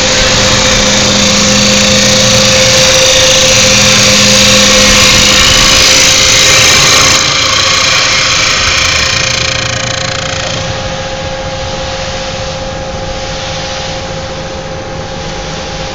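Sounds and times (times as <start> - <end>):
lathe cutter shaving wood: 0.0 - 12.2
machine whine: 0.0 - 15.9.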